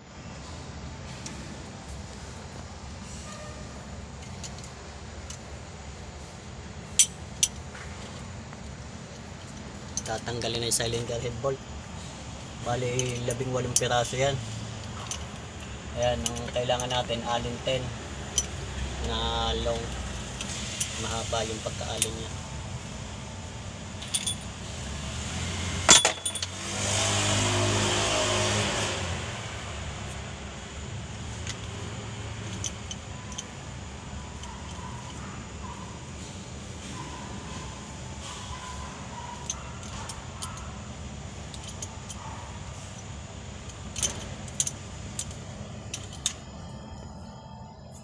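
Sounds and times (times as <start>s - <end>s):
vehicle engine droning: 0.0s - 48.0s
sharp metal clank: 25.9s - 26.6s
low steady hum: 29.2s - 48.0s.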